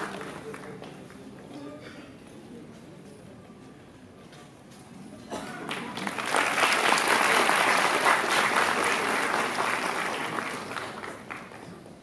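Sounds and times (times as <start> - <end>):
audience applauding: 0.0 - 0.8, 5.7 - 11.7.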